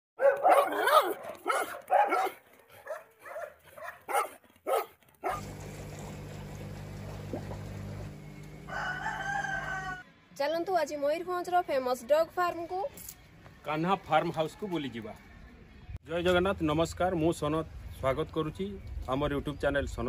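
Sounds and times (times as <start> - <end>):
dog barking: 0.2 - 5.5
aquarium pump humming: 5.3 - 10.0.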